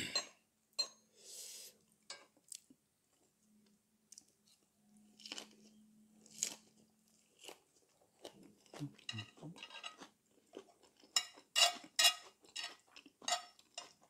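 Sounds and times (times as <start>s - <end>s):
person chewing food: 4.1s - 14.0s.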